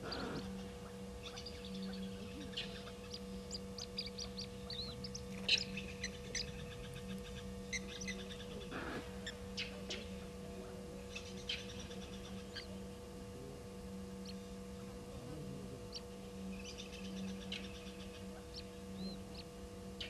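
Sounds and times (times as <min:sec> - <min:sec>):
birds alarm calling: 0:00.0 - 0:10.3, 0:11.0 - 0:12.8, 0:15.9 - 0:19.6
steady low hum: 0:00.0 - 0:20.0.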